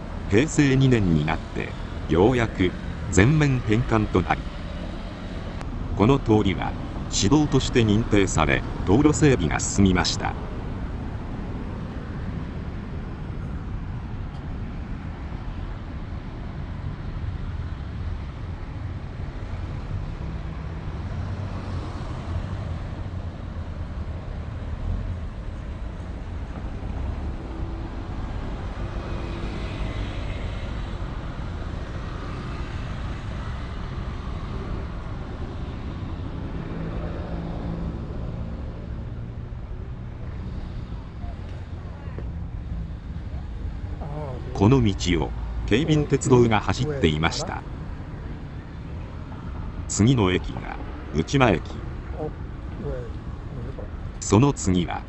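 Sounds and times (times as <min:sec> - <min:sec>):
traffic rumble: 0:00.0 - 0:55.0
vehicle engine: 0:25.6 - 0:54.8.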